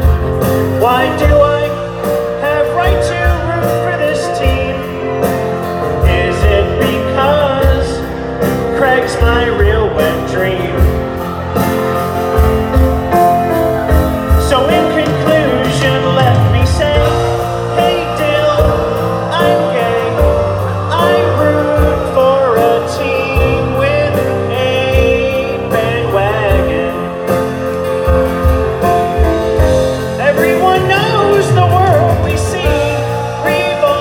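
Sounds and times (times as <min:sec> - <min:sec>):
live band playing: 0:00.0 - 0:34.0
men singing into microphones: 0:00.8 - 0:11.2, 0:14.4 - 0:27.3, 0:30.2 - 0:34.0.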